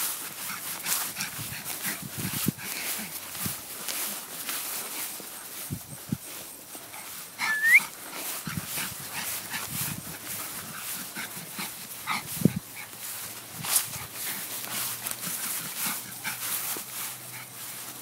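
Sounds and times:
puppy scampering on grass: 0.0 - 18.0
puppy whining: 7.4 - 7.9.

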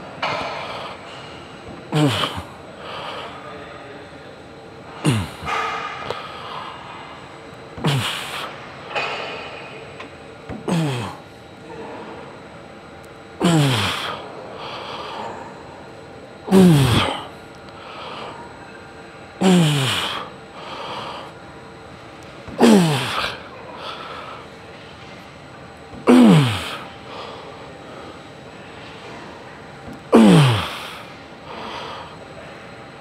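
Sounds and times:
man grunting exhales: 1.9 - 2.5, 5.0 - 6.6, 7.8 - 8.5, 10.6 - 11.2, 13.4 - 14.2, 16.5 - 17.3, 19.4 - 20.3, 22.6 - 24.0, 26.1 - 26.8, 30.2 - 31.0.

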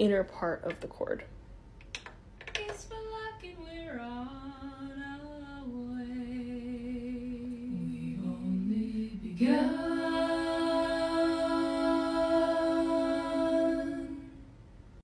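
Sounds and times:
woman singing close harmony: 2.6 - 14.4.

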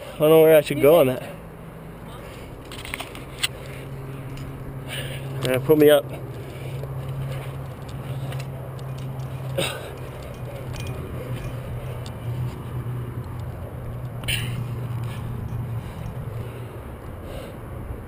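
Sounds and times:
wind: 0.0 - 18.0
low hum: 1.2 - 18.0
camera handling noise: 2.6 - 3.7
person breathing: 3.5 - 5.4, 6.1 - 8.8, 14.4 - 17.8.

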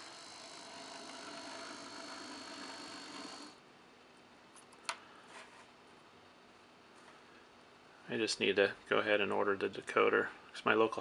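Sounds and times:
model locomotive motor whine: 0.0 - 3.6.

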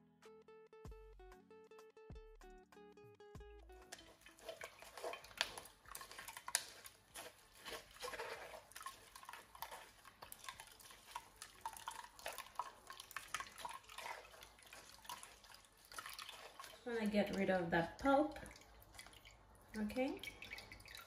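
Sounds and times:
juice dripping: 3.6 - 21.0
spoon scraping in sieve: 3.9 - 17.6.

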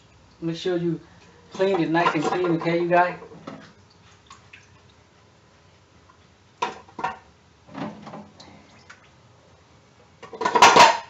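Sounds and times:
oysters clattering in metal pot: 1.6 - 3.2, 10.2 - 11.0.

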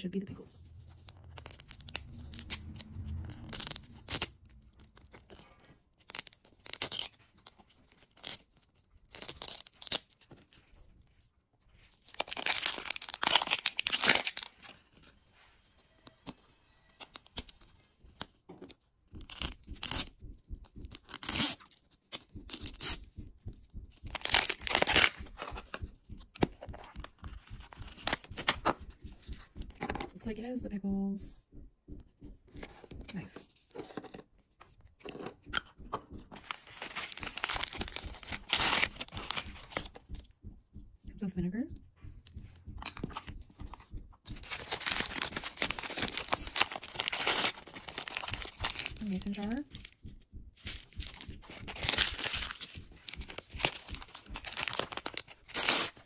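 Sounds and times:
paper wrapper tearing: 0.8 - 10.7, 12.0 - 15.1, 36.4 - 39.9, 44.4 - 49.8, 51.0 - 56.0.

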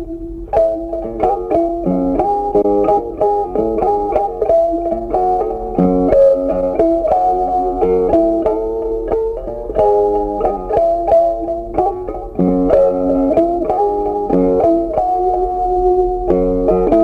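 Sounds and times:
plucked guitar melody: 0.0 - 17.0.

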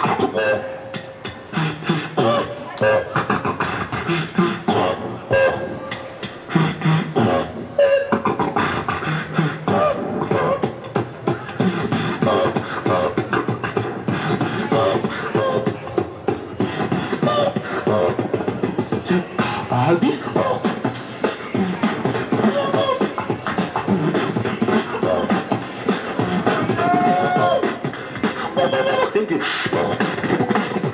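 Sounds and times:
person beatboxing into microphone: 0.0 - 30.9.

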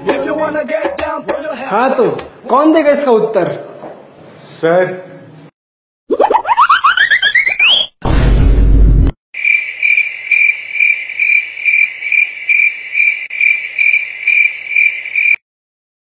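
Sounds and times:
loud low noise burst: 8.0 - 9.1
cricket chirping: 9.4 - 15.4.

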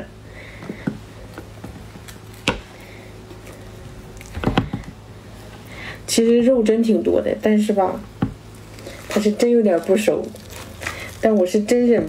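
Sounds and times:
low steady hum: 0.0 - 12.0
knocks and clicks of fruit husk: 4.2 - 5.0.

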